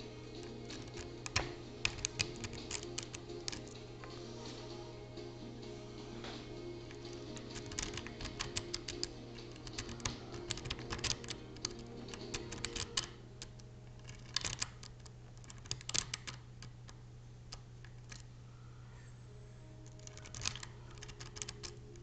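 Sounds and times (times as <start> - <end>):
lock pick clicking and scraping: 0.4 - 3.8, 6.9 - 16.8, 19.8 - 22.0.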